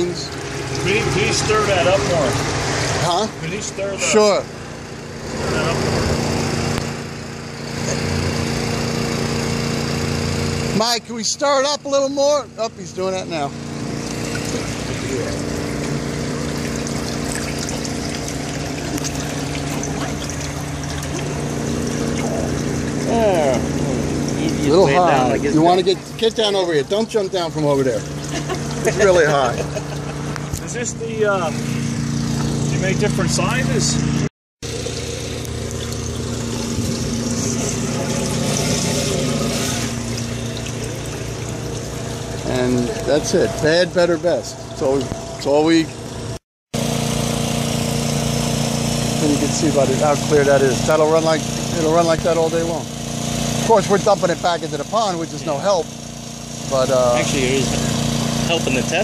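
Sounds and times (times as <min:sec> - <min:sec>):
water pouring from pipe: 0:00.0 - 0:03.7, 0:12.9 - 0:30.7, 0:34.6 - 0:59.0
pump humming: 0:00.0 - 0:59.0.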